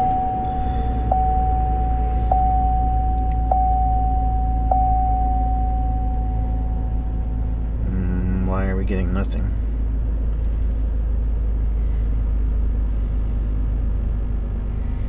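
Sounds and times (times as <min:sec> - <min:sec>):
dashboard warning chime: 0:00.0 - 0:07.9
engine rumbling: 0:00.0 - 0:15.0.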